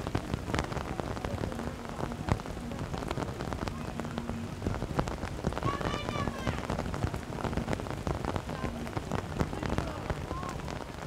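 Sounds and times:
rain pattering: 0:00.0 - 0:11.0.

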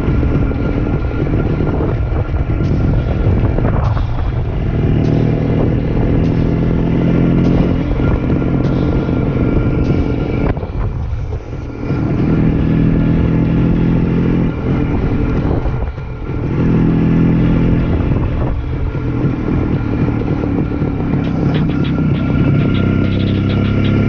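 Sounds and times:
wind rush on microphone: 0:00.0 - 0:23.7
motorcycle engine running: 0:00.0 - 0:24.0.

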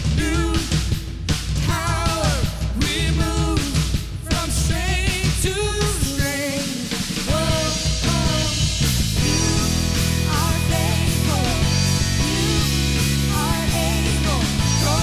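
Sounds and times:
worship band playing: 0:00.0 - 0:15.0
woman singing with vibrato: 0:09.2 - 0:15.0.

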